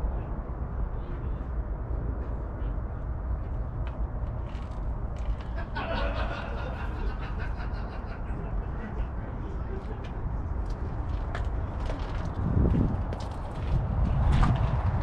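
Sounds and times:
people talking and laughing: 0:05.3 - 0:10.9.

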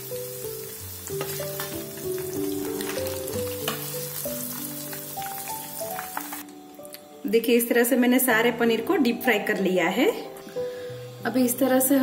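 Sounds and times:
paneer deep-frying in oil: 0:00.0 - 0:06.5
background music: 0:00.0 - 0:12.0.

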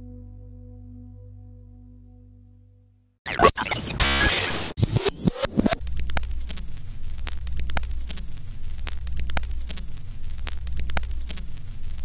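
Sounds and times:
crackling pops: 0:04.7 - 0:12.0.

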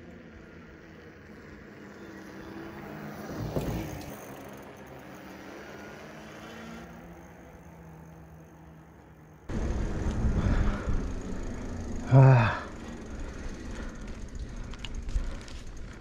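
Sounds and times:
vehicle passing by: 0:00.2 - 0:16.0
steady low hum: 0:09.5 - 0:16.0.

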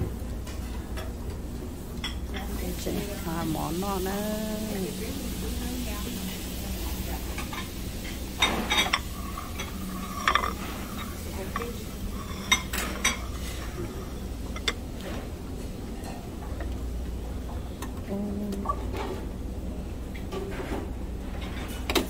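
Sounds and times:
steady low hum: 0:00.0 - 0:21.5
metal tongs clinking on pans: 0:07.3 - 0:13.7.

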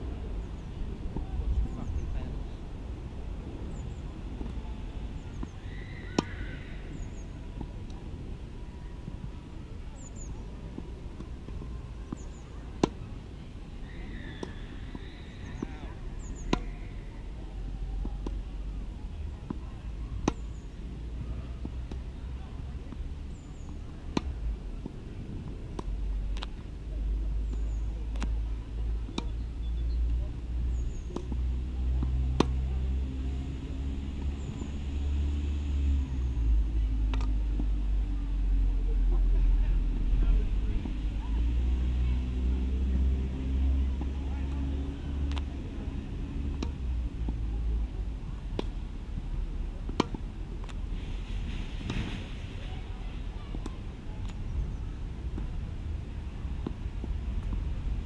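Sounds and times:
low rumble: 0:00.0 - 0:58.0
tennis balls knocking: 0:10.5 - 0:13.0, 0:19.4 - 0:20.6, 0:21.3 - 0:26.7, 0:27.4 - 0:30.2, 0:31.0 - 0:32.7, 0:37.1 - 0:37.7, 0:45.3 - 0:47.5, 0:49.8 - 0:50.8.

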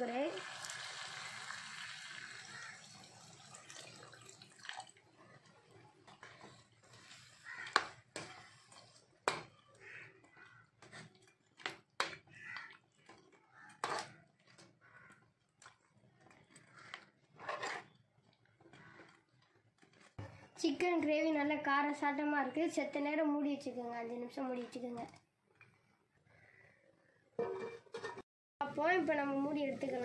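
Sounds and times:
water pouring into metal pan: 0:00.0 - 0:07.5
metal ladle scraping a pan: 0:05.2 - 0:11.5, 0:13.0 - 0:14.6, 0:16.4 - 0:18.0, 0:27.4 - 0:28.2.

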